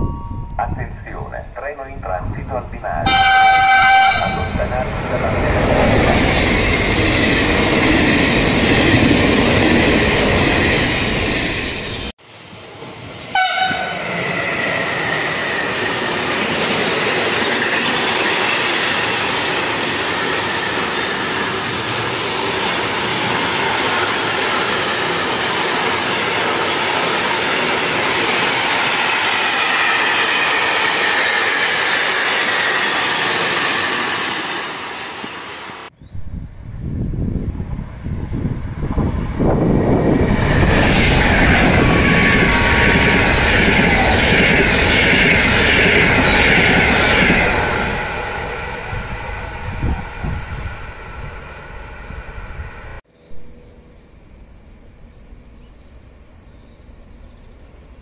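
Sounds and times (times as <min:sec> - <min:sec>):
freight train rolling past: 0:00.0 - 0:58.0
passenger train passing: 0:00.0 - 0:58.0
train horn blast: 0:03.0 - 0:04.8, 0:13.3 - 0:14.1.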